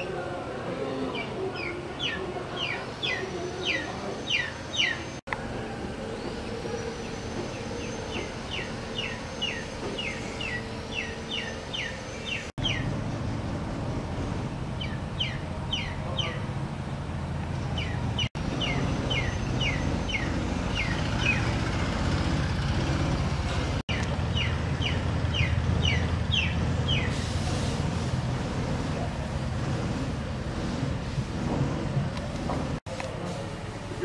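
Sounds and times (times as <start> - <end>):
bird chirping: 1.1 - 5.2, 6.0 - 12.9, 14.8 - 16.4, 17.7 - 21.6, 23.9 - 27.2.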